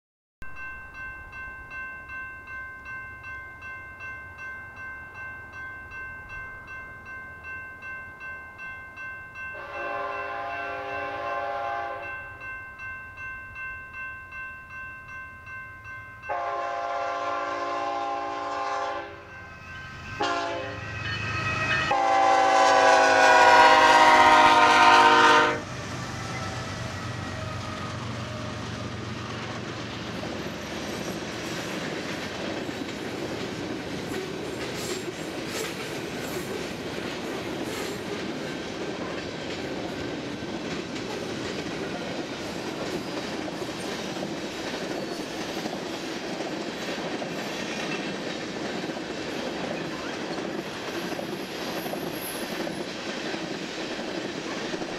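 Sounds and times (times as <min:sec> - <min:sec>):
crossing bell ringing: 0:00.4 - 0:52.9
train rumbling over crossing: 0:00.4 - 0:54.9
locomotive air horn blasts: 0:09.6 - 0:12.1, 0:16.3 - 0:19.3, 0:20.2 - 0:20.9, 0:21.6 - 0:25.7.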